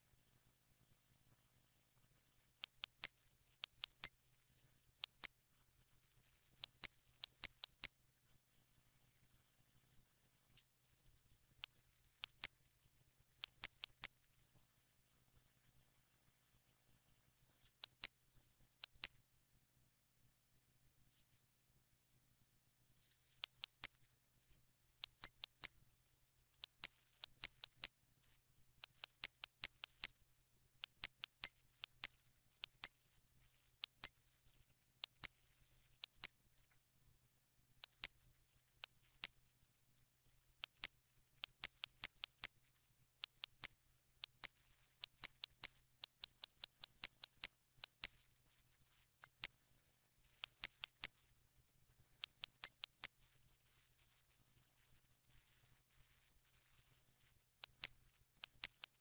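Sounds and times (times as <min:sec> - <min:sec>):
faint low hum: 0:00.0 - 0:59.0
computer mouse clicking: 0:02.6 - 0:08.0, 0:11.5 - 0:12.7, 0:13.4 - 0:14.5, 0:17.4 - 0:18.2, 0:18.8 - 0:19.2, 0:23.0 - 0:25.8, 0:26.5 - 0:30.2, 0:30.8 - 0:36.8, 0:37.8 - 0:39.5, 0:40.3 - 0:49.6, 0:50.2 - 0:51.4, 0:52.0 - 0:59.0.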